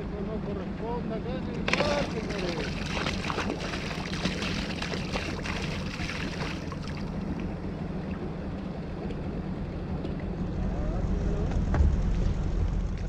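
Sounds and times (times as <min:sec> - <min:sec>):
steady low drone: 0:00.0 - 0:13.0
water pouring and splashing: 0:01.7 - 0:07.5.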